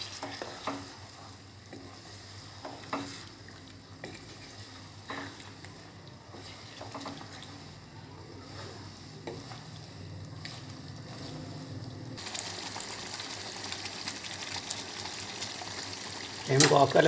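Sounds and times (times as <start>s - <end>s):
wooden spoon scraping pan: 0.0s - 3.4s, 4.0s - 5.6s, 6.3s - 7.8s
gravy bubbling and sizzling: 0.0s - 17.0s.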